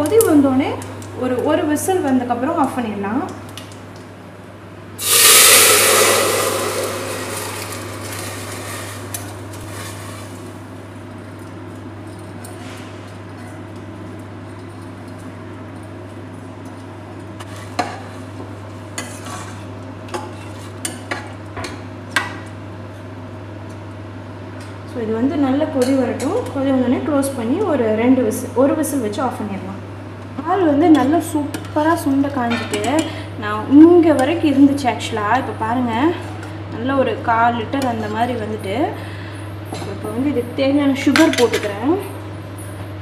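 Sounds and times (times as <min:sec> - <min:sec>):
rice sizzling in hot ghee: 0:05.0 - 0:10.6.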